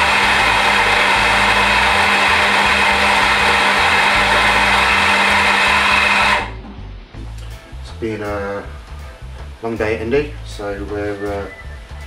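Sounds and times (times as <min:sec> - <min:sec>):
coffee grinder whirring: 0:00.0 - 0:06.5.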